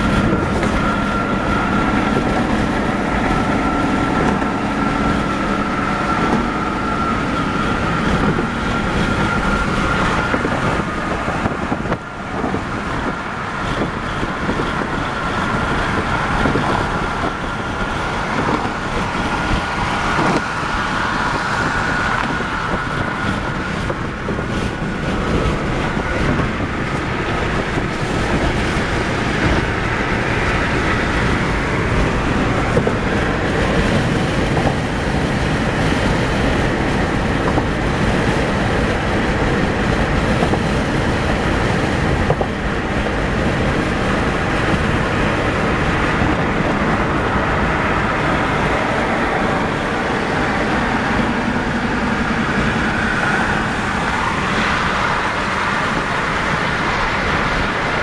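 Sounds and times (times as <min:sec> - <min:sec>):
car tyre and wind noise: 0:00.0 - 0:58.0.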